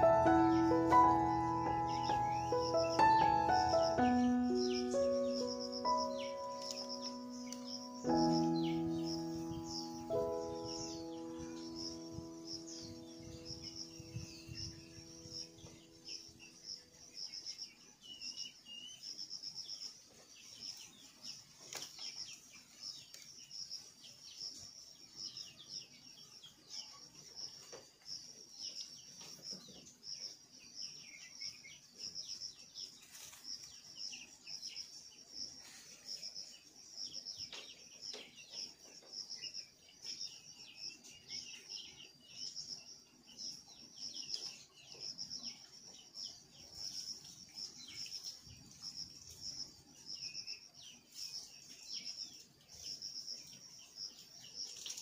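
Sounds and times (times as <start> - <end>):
insects buzzing: 0.0 - 25.4
birds chirping: 0.0 - 27.7.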